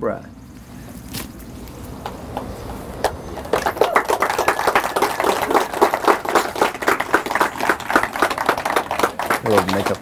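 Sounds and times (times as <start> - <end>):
people applauding: 2.3 - 10.0.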